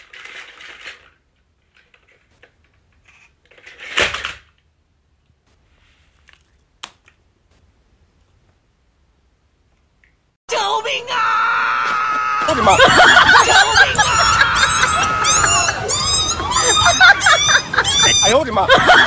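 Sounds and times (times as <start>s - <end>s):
plastic toy clattering on wooden floor: 0.0s - 4.6s.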